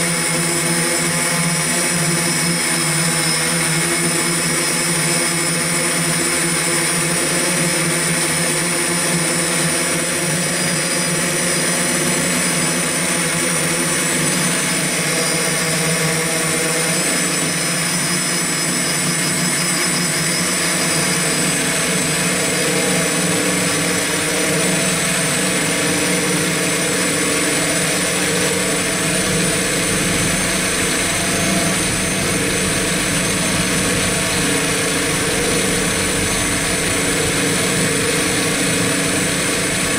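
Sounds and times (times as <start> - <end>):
drone motors and propellers humming: 0.0 - 39.9.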